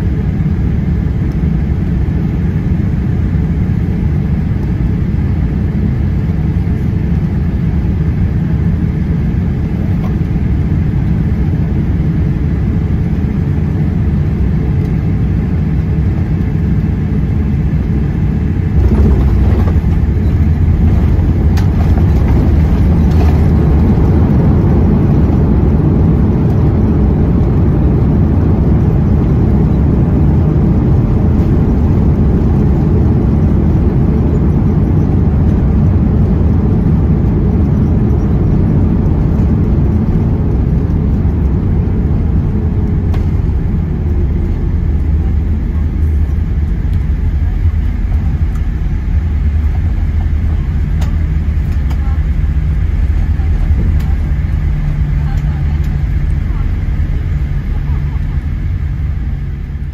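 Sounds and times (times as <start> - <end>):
jet engine rumble in cabin: 0.0 - 59.9.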